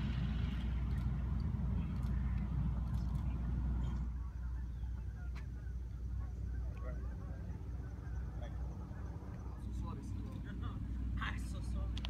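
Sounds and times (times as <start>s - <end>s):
low steady rumble: 0.0s - 12.0s
faint bird calls: 3.0s - 9.8s.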